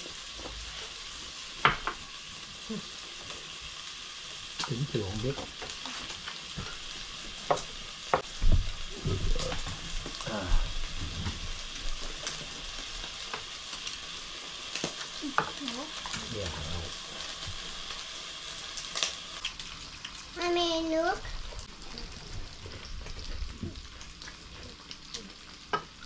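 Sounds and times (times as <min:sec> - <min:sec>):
meat sizzling on grill: 0:00.0 - 0:26.0.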